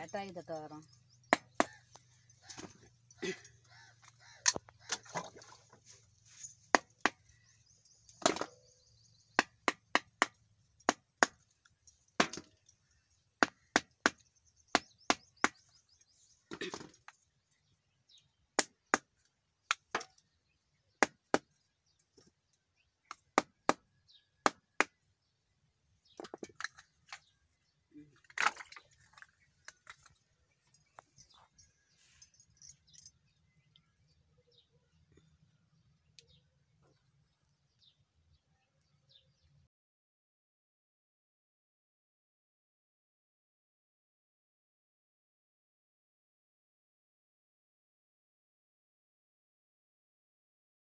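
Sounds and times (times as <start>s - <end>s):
sharp knocks on coconut shells: 1.3s - 1.9s, 6.7s - 7.2s, 8.2s - 8.6s, 9.3s - 11.4s, 12.2s - 12.5s, 13.4s - 15.7s, 18.6s - 19.1s, 21.0s - 21.6s, 23.1s - 25.0s.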